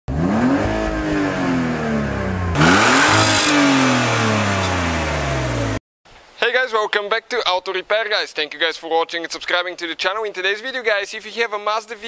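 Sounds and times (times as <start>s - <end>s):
car engine revving: 0.1s - 5.8s.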